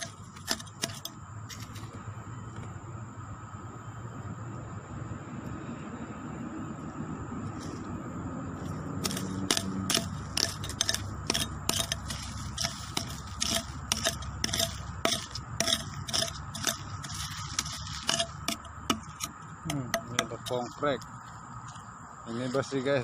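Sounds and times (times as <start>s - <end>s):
scraping through dry leaf litter: 8.5s - 19.3s.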